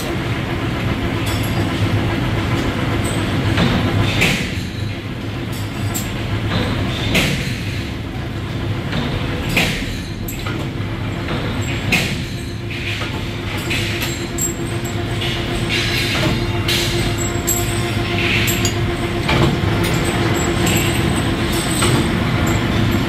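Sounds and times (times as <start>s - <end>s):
machinery humming: 0.0s - 23.0s
metallic clank: 8.9s - 23.0s
metal clinks: 13.5s - 23.0s.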